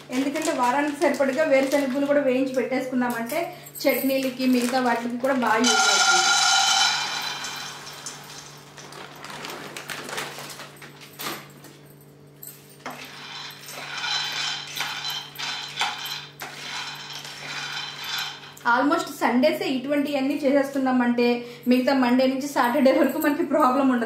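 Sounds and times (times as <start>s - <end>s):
peanuts stirred with a spatula: 5.6s - 8.5s, 13.1s - 18.6s
peanuts pouring into a pan: 5.6s - 9.4s, 13.1s - 18.5s.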